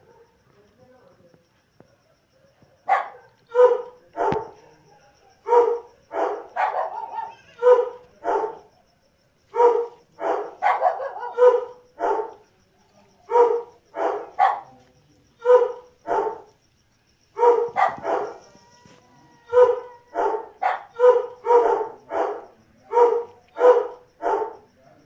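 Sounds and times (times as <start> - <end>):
dog barking: 0.0 - 0.4, 1.8 - 8.9, 9.5 - 12.4, 13.2 - 14.8, 15.4 - 16.6, 17.4 - 18.6, 19.3 - 24.7.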